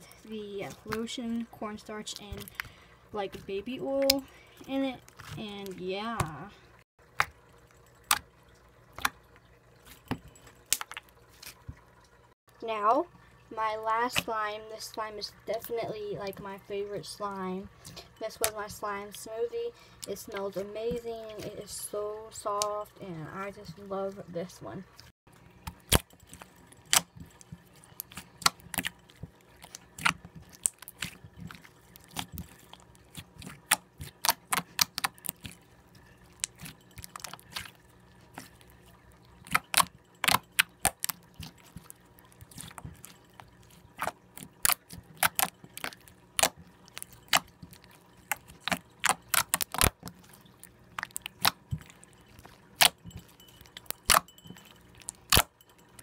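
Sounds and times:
slime clicking and popping: 26.8s - 27.1s, 28.0s - 35.6s, 39.4s - 43.1s, 44.0s - 47.6s, 48.2s - 50.2s, 51.0s - 52.0s, 52.8s - 54.3s.

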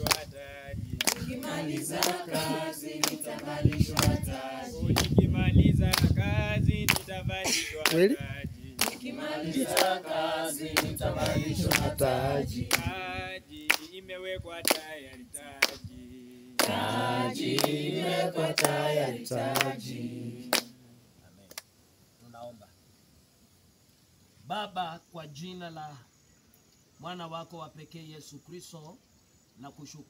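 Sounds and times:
hand claps: 0.0s - 0.3s, 1.0s - 5.2s, 5.8s - 6.2s, 6.9s - 7.2s, 7.8s - 8.2s, 8.8s - 10.0s, 10.7s - 12.1s, 12.7s - 12.9s, 13.7s - 14.0s, 14.6s - 15.8s, 16.6s - 17.8s, 18.5s - 19.9s, 20.5s - 20.8s, 21.5s - 21.7s
group singing a hymn: 0.0s - 21.0s.

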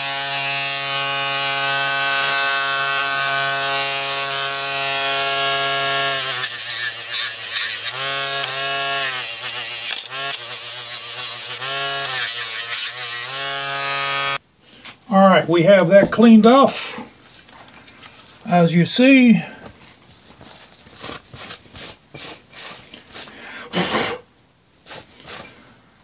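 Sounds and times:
small electric tool humming: 0.0s - 14.4s.

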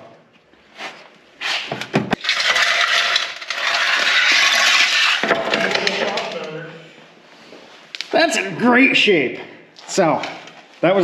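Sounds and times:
metal crunching scrape: 1.5s - 6.6s
rusted sheet steel cracking: 2.2s - 6.6s.

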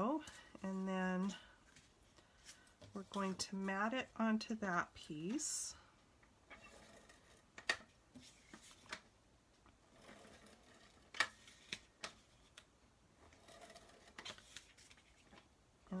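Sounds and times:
cardstock handling: 14.1s - 15.5s.

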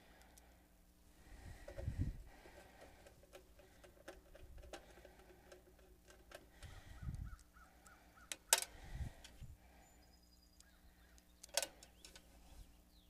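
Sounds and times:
clicks and taps of parts handled: 2.5s - 9.4s, 11.2s - 12.3s.

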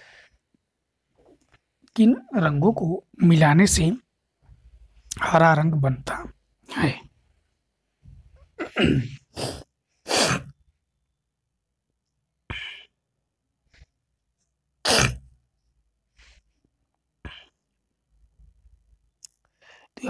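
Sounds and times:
person sneezing and coughing: 8.6s - 10.6s, 14.8s - 15.3s.

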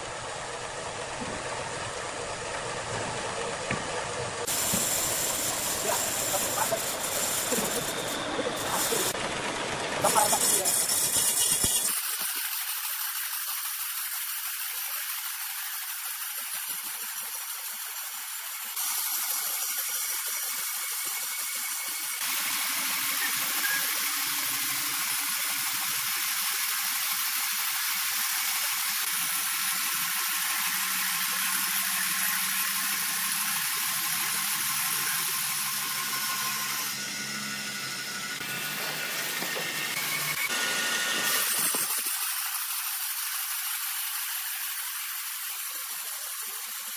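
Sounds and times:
low motor hum: 0.0s - 11.6s, 35.0s - 41.3s
band saw cutting logs: 0.0s - 46.9s.

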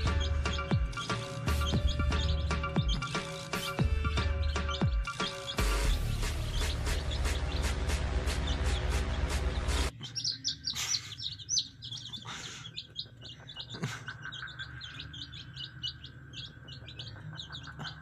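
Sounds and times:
background music: 0.0s - 10.0s
chicks peeping: 0.0s - 18.0s.

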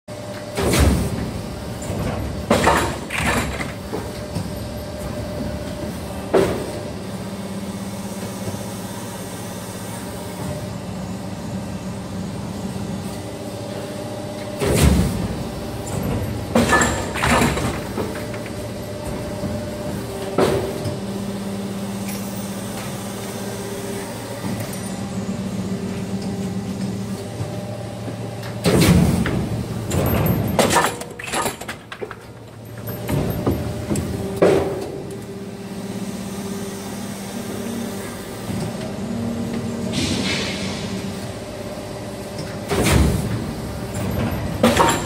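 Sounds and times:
machine motor and pump hum: 0.1s - 45.0s
loud machine clunks with hisses: 28.6s - 31.5s, 39.6s - 41.5s, 42.3s - 45.0s.

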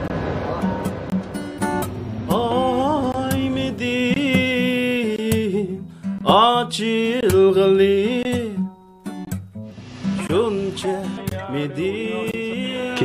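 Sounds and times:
acoustic guitar: 0.0s - 13.0s
man singing long notes: 2.3s - 8.7s, 10.2s - 13.0s.

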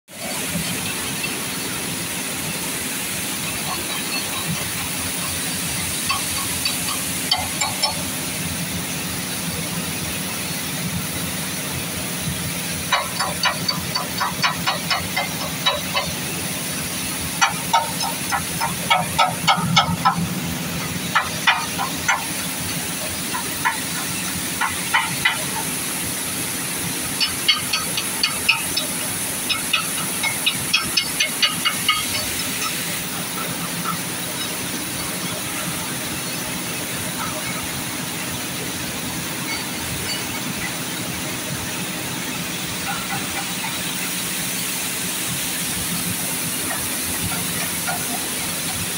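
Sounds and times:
flour mill machinery humming: 0.1s - 48.9s
rapid ticking bursts: 3.2s - 8.9s, 12.2s - 38.2s.

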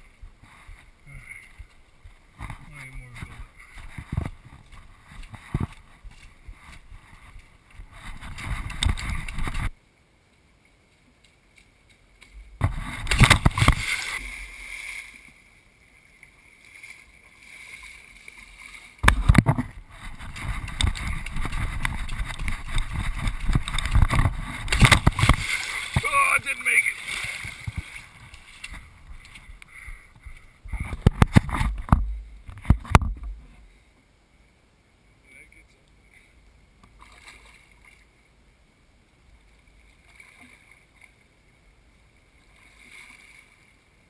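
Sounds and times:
muddy water splashing: 0.0s - 9.8s, 11.1s - 33.7s, 36.8s - 38.2s, 39.4s - 41.5s
wind buffeting camera: 1.5s - 9.8s, 12.3s - 14.6s, 19.0s - 33.6s.

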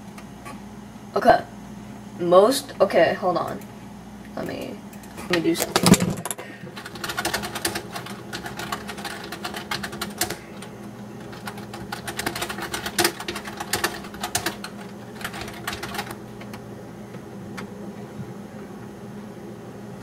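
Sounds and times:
steady low hum: 0.0s - 20.0s
keyboard typing and mouse clicking: 4.5s - 16.6s.

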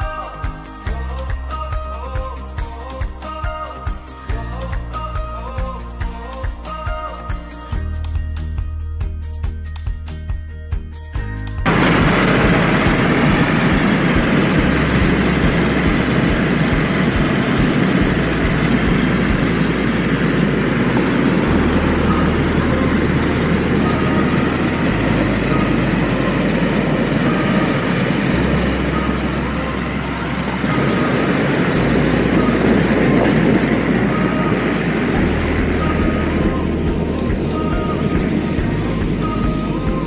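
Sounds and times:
balloon inflator fan running: 11.7s - 40.0s.

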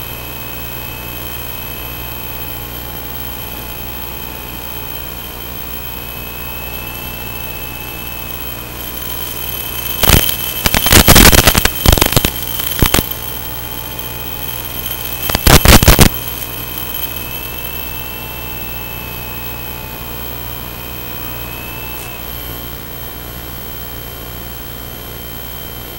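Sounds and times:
steady electrical hum: 0.0s - 25.9s
loud noise bursts: 6.6s - 23.0s.

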